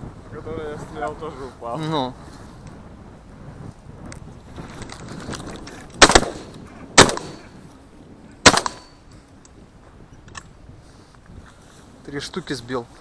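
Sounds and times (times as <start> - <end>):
shotgun firing: 6.0 - 7.5, 8.4 - 9.0
gunshot echo: 6.0 - 7.6, 8.4 - 9.0.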